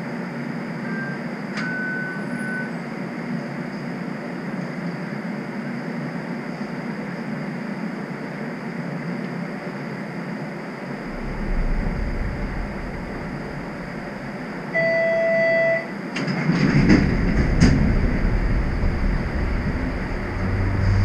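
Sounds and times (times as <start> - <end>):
streetcar rumble and hiss: 0.0 - 21.0
clunks and rattles: 16.2 - 21.0.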